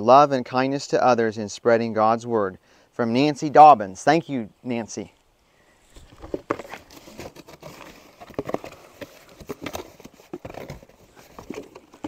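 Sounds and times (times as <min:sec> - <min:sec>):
cardboard boxes being opened: 0:05.9 - 0:12.0.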